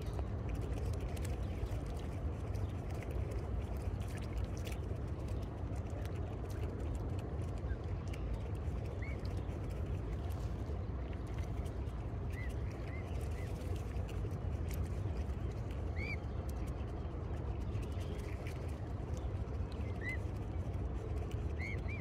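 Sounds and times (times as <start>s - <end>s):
faint light ticks: 0.0s - 16.8s
steady low rumble: 0.0s - 22.0s.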